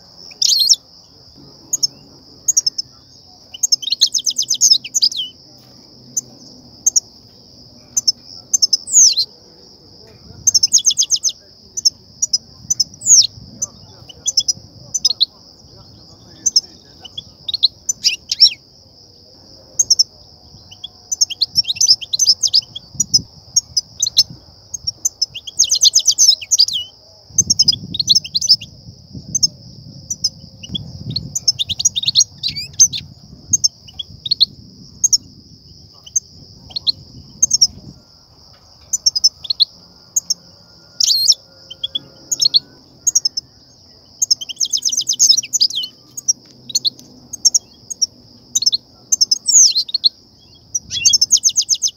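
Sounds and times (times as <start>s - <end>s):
goldfinches twittering: 0.0s - 18.6s, 19.8s - 28.7s, 29.3s - 37.9s, 38.8s - 51.9s
rattling bird chatter: 1.3s - 5.4s.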